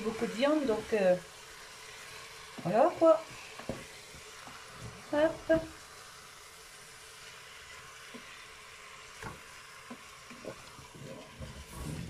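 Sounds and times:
meat sizzling: 0.0s - 12.0s.

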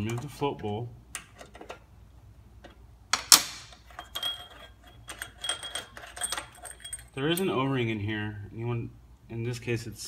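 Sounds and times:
wrench clanking on steel bench: 3.7s - 7.5s
metallic ringing and clinking: 3.7s - 7.6s.

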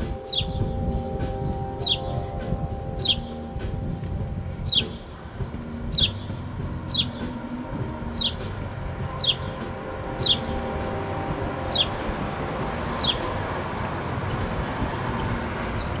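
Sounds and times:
sparrow chirping: 0.0s - 16.0s.

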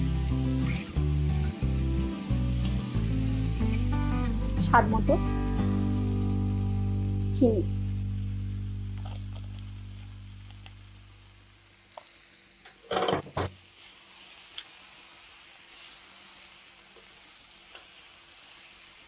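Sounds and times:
faint sizzle: 0.0s - 19.0s
low tone: 4.4s - 11.5s.

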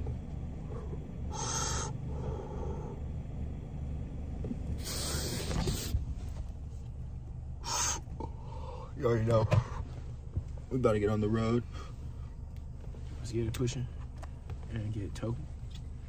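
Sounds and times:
car engine idling hum: 0.0s - 16.0s
person exhaling smoke: 0.7s - 3.0s, 4.8s - 6.0s.

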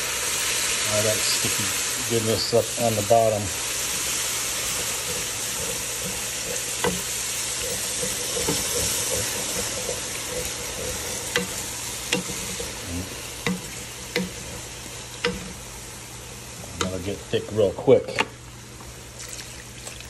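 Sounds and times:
broth sizzling in a pan: 0.0s - 17.9s
wooden spoon scraping a pan: 1.4s - 15.6s
spoon knocking against pan: 4.7s - 12.7s, 13.5s - 14.4s.

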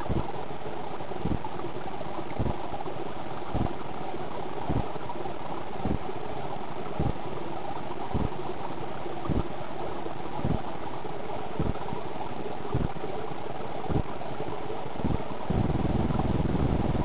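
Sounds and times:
water pump humming and hissing: 0.0s - 17.0s
low thumps: 3.5s - 3.8s, 5.8s - 6.1s, 8.1s - 8.4s, 9.2s - 9.5s, 11.6s - 11.8s, 12.7s - 13.0s, 13.9s - 14.1s, 15.0s - 17.0s.

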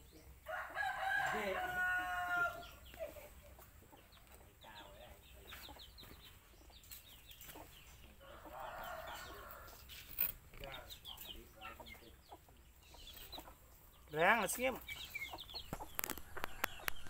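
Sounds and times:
chicks peeping: 0.0s - 17.0s
rooster crowing: 0.5s - 2.6s, 8.2s - 9.8s.

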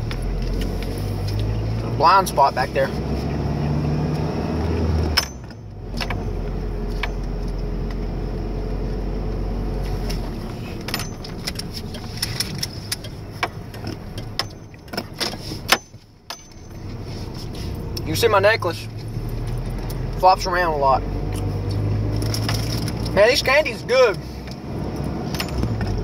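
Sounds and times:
truck engine running: 0.0s - 26.0s
jingling rattling clicks: 10.8s - 17.0s, 22.2s - 26.0s.

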